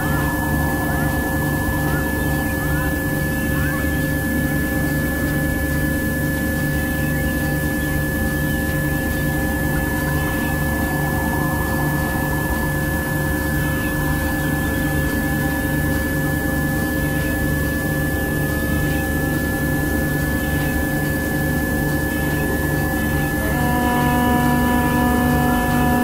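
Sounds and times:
faint tone rising in pitch: 0.0s - 5.3s, 6.8s - 15.8s, 22.2s - 26.0s
low pulsing tone: 0.0s - 26.0s
steady hiss: 0.0s - 26.0s
held electronic tones: 23.2s - 26.0s.

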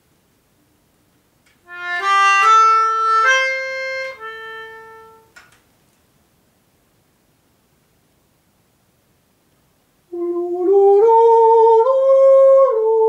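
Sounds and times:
melodica playing reedy notes: 1.7s - 5.3s.

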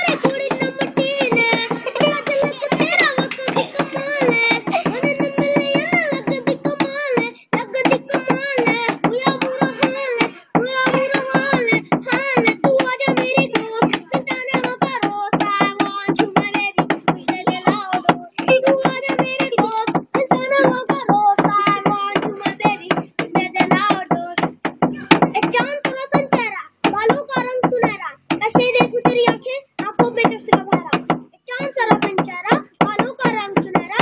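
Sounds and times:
boy rapping: 0.0s - 34.0s.

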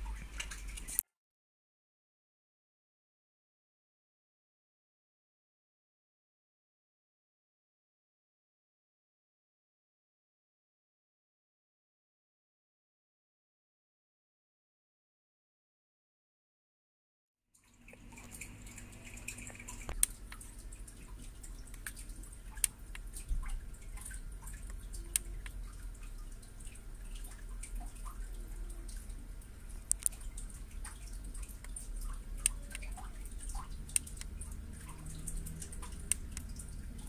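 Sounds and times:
low steady hum: 0.0s - 1.0s, 17.6s - 37.0s.

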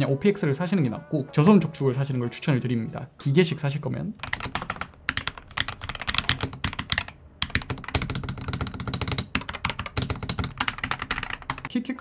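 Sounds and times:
fast keyboard typing: 4.2s - 11.7s.

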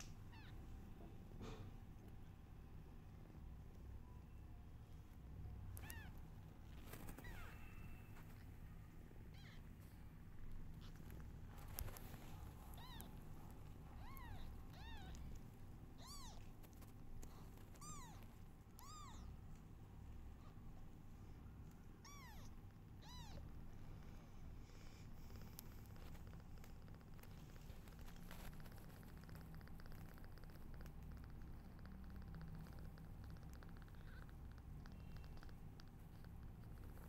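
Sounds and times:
newborn kittens mewing: 0.0s - 0.7s, 5.7s - 8.0s, 9.2s - 10.0s, 10.6s - 19.4s, 22.0s - 25.7s, 27.0s - 37.0s.

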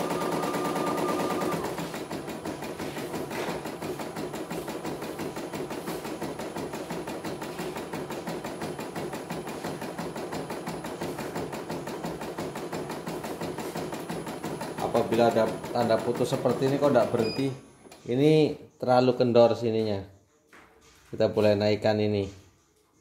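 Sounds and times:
embroidery machine stitching clatter: 0.0s - 17.4s.

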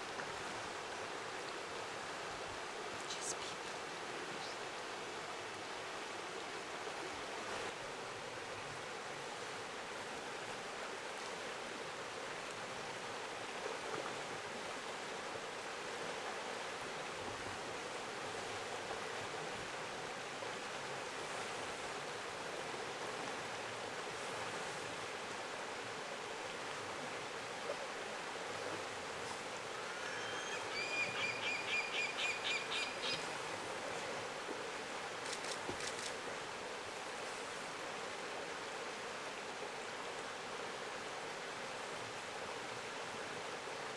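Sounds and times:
river water rushing: 0.0s - 43.9s
bird calling: 29.9s - 33.3s.

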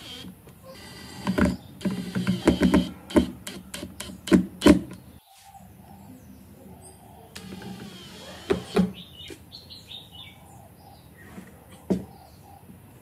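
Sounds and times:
impact driver driving screws: 0.0s - 4.8s, 7.4s - 9.0s.

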